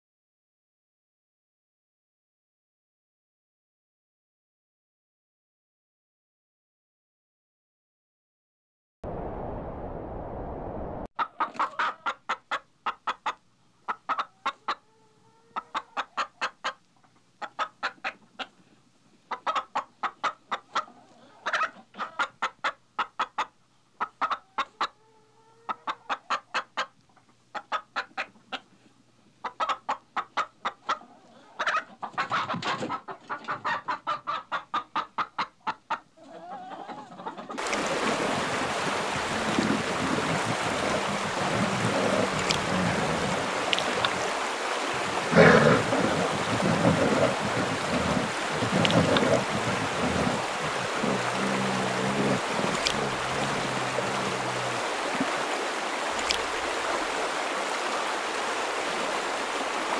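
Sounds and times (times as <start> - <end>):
chickens clucking: 11.2 - 18.7, 19.3 - 28.8, 29.4 - 55.3, 56.1 - 57.2
water washing: 37.6 - 57.5.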